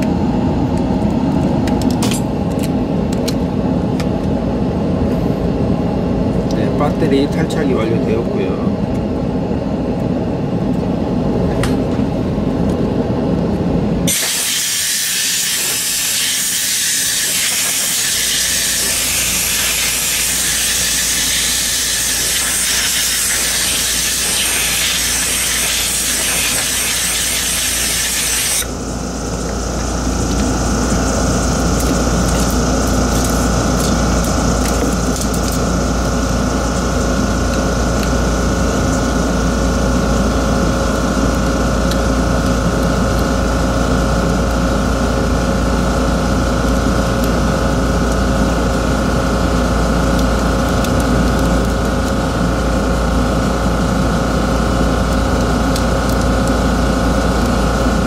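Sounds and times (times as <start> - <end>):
motor hum with high whine: 0.0 - 58.0
compressed air hissing: 14.1 - 30.0.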